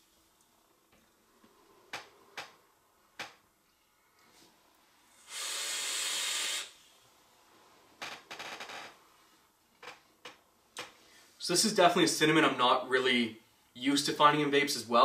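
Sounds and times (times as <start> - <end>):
e-cigarette draw hiss: 5.2 - 6.8.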